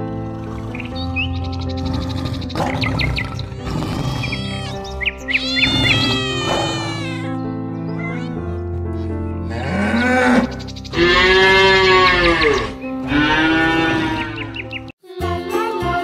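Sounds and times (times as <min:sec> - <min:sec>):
background music with sustained notes: 0:00.0 - 0:16.0
cow mooing: 0:01.8 - 0:07.0, 0:09.5 - 0:14.6.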